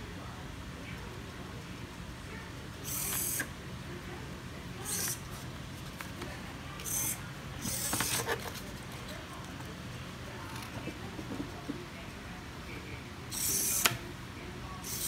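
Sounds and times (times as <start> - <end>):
servo motors whirring: 2.8 - 3.5, 6.8 - 8.5, 13.3 - 13.9.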